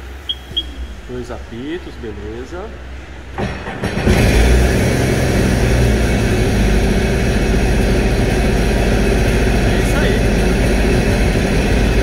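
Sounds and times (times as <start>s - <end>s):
jet ski engine starting and idling: 2.6s - 12.0s.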